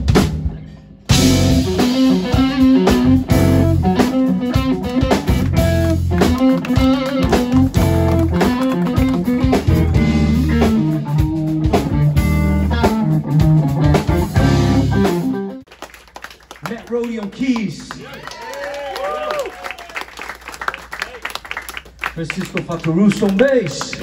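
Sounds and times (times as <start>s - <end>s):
electric guitar: 1.1s - 15.6s
jazz fusion band playing: 1.1s - 15.7s.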